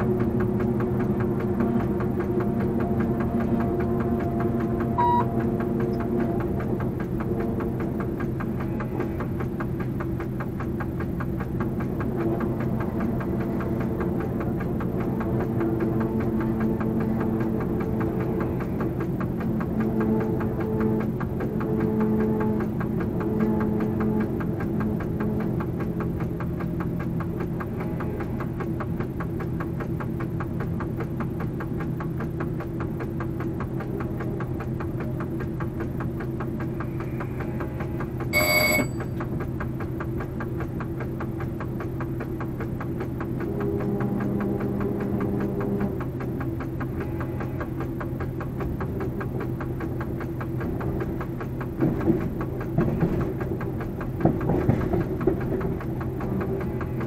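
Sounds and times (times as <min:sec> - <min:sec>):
diesel locomotive engine drone: 0:00.0 - 0:57.0
short high electronic beep: 0:05.0 - 0:05.3, 0:38.4 - 0:39.0.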